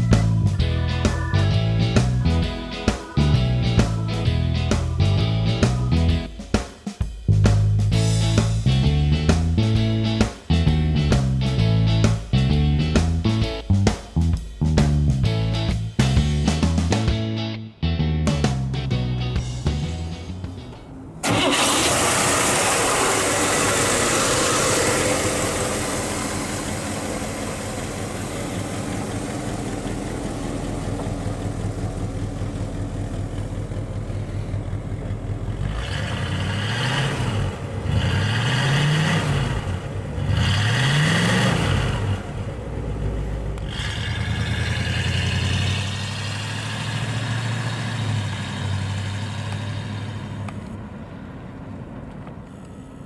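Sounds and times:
car engine starting and idling: 0.0s - 6.5s, 17.9s - 53.0s
engine revving: 18.3s - 50.8s.

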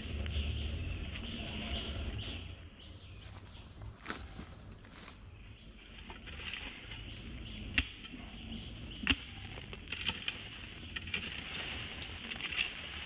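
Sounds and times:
knocks and scrapes of digging: 3.2s - 13.0s.

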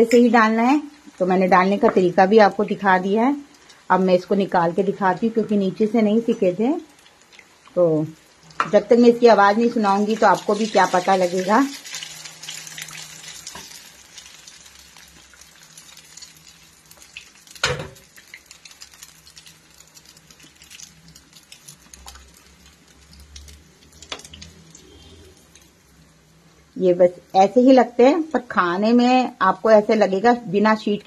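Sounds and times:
food sizzling in hot oil: 0.0s - 31.0s.

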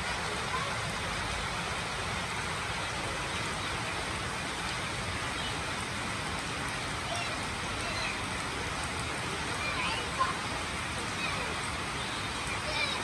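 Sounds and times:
individual raindrops ticking: 0.0s - 13.0s
steady rain falling: 0.0s - 13.0s.

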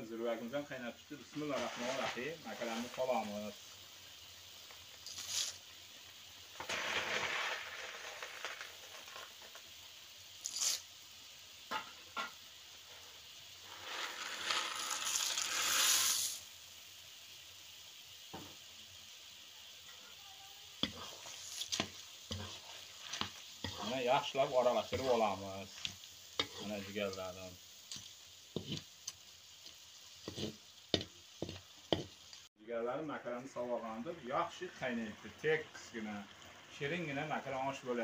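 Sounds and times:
faint steady sizzle: 0.0s - 38.0s
dry pasta poured into pot: 1.3s - 3.6s, 6.6s - 9.8s, 13.6s - 16.5s.

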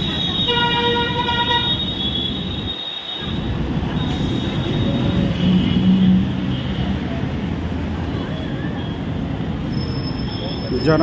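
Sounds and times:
road traffic rumble: 0.0s - 11.0s
vehicle horn: 0.1s - 2.5s.

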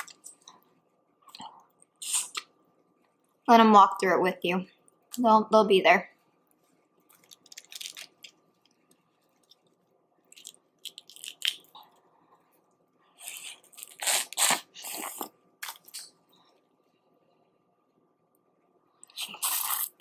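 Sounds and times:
wet chewing: 7.0s - 11.8s
shells crunching and crackling: 7.1s - 8.8s, 10.3s - 11.8s.

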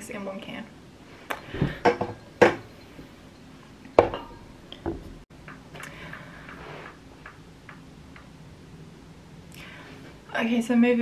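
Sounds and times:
glass clinking on hard surface: 1.9s - 5.0s.

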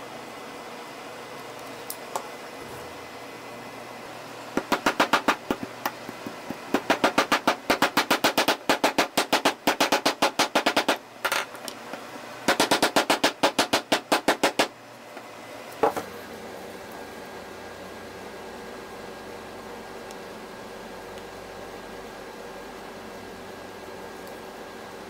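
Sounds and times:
small hammer tapping metal: 4.6s - 11.5s.

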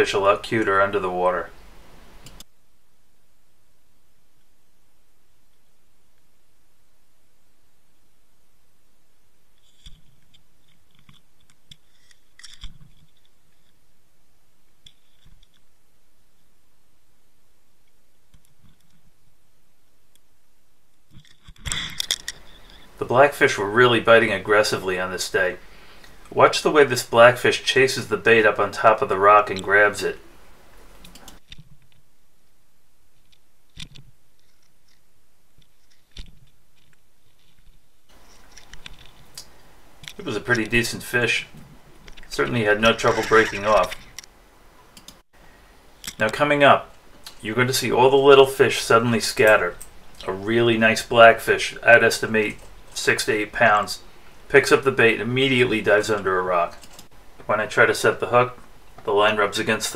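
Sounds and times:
faint steady hiss: 0.0s - 59.9s
sharp clicks: 30.9s - 31.6s, 45.0s - 45.2s, 56.7s - 57.2s
underwater clicks and crunches: 33.2s - 40.2s.

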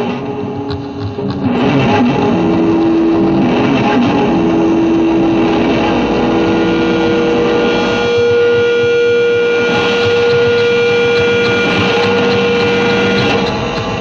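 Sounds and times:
loud droning music: 0.0s - 14.0s.

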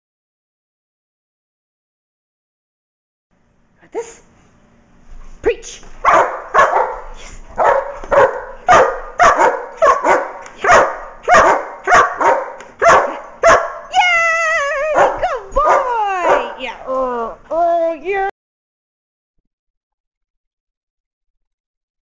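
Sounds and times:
dog barking: 6.0s - 13.9s, 14.9s - 16.6s.

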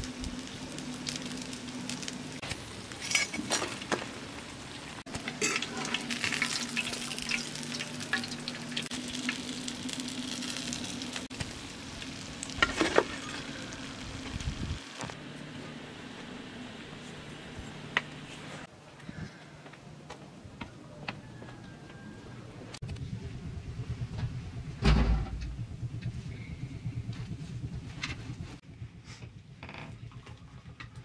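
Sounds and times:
fish sizzling in hot oil: 0.0s - 15.2s.

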